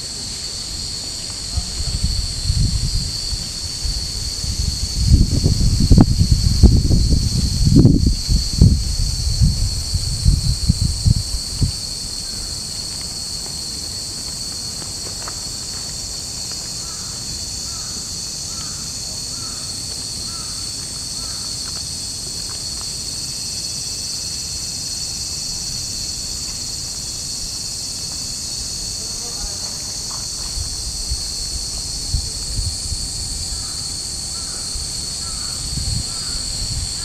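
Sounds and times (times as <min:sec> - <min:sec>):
cicadas droning: 0:00.0 - 0:37.0.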